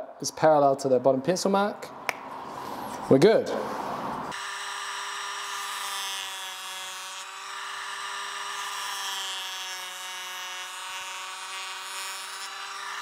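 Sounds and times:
power planer whining: 0:04.3 - 0:13.0.

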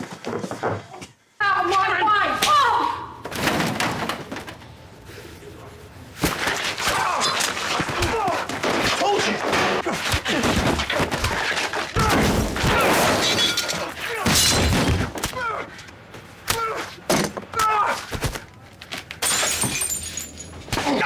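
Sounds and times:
something smashing and breaking: 0:06.2 - 0:15.2
men shouting and grunting: 0:06.8 - 0:10.6.

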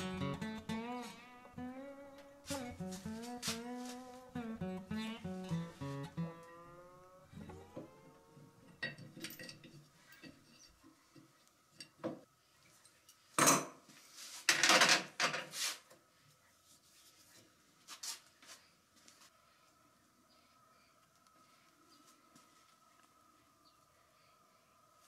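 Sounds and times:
metal parts clinking and clattering: 0:08.7 - 0:10.8.

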